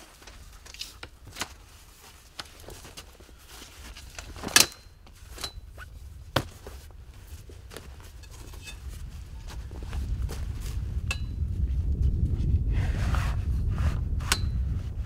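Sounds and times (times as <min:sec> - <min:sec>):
camp gear clicking and knocking: 0:00.0 - 0:10.4.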